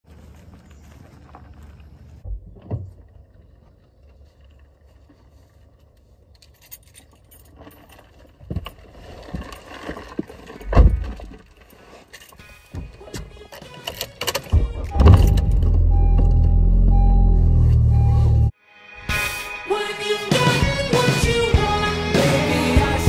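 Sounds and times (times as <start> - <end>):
keys jangling: 6.4 - 8.1.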